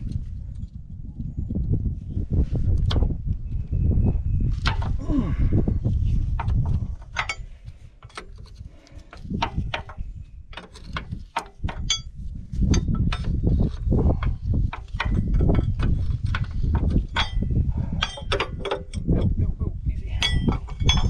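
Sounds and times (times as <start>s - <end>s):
low rumble: 0.0s - 11.2s, 11.8s - 21.0s
hand tools clinking on metal: 17.1s - 19.3s, 20.2s - 21.0s.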